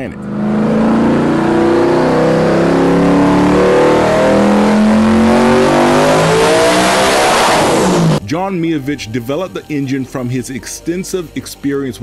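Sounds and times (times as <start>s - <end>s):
car engine revving on dynamometer: 0.0s - 8.2s.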